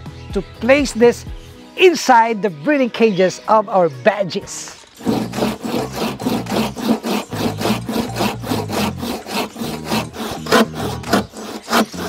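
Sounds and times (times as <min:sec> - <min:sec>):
hand saw cutting bamboo: 0:04.9 - 0:12.0.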